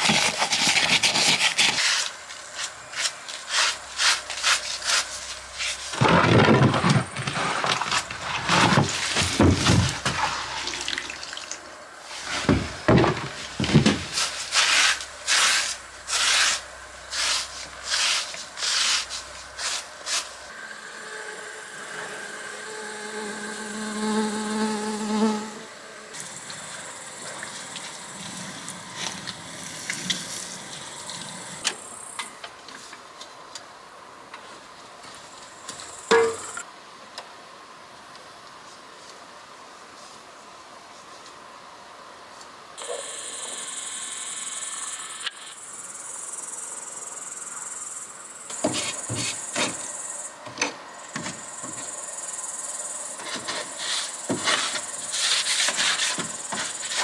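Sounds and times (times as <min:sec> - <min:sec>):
brush scrubbing stone: 0:00.0 - 0:05.9, 0:14.1 - 0:20.4, 0:53.2 - 0:57.0
steady buzz: 0:12.1 - 0:32.1.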